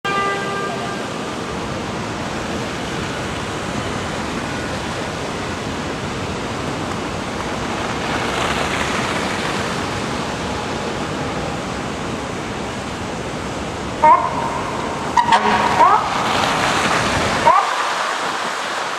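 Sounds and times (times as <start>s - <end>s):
vehicle horn: 0.0s - 1.2s, 14.0s - 14.6s, 15.2s - 16.2s
traffic on slushy street: 0.1s - 18.9s
vehicle hissing through slush: 0.4s - 18.9s.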